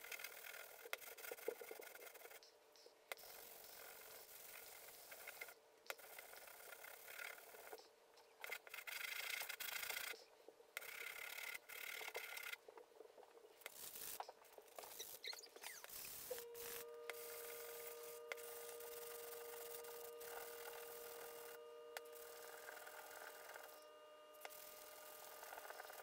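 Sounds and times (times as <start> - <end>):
hammer head rasping on sandpaper: 14.8 - 26.0.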